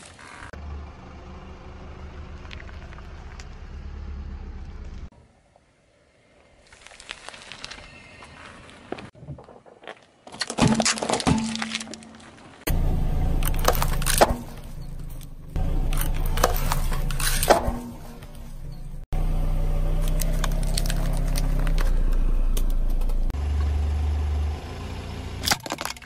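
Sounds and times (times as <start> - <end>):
car engine idling: 0.2 - 5.1, 12.7 - 25.6
plastic cracking under tyre: 13.4 - 14.7, 20.0 - 23.1.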